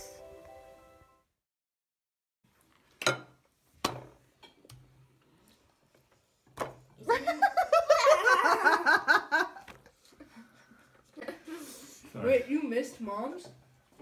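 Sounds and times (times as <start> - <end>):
dishes and cutlery clinking: 2.9 - 4.6.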